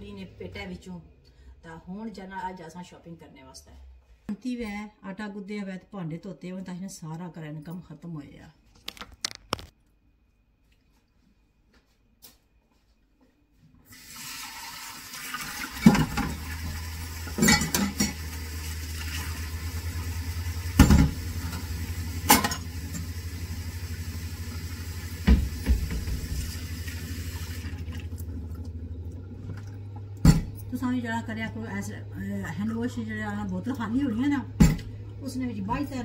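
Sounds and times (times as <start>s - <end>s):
low steady hum: 0.0s - 8.7s, 25.9s - 36.0s
tap running into steel sink: 25.2s - 26.5s.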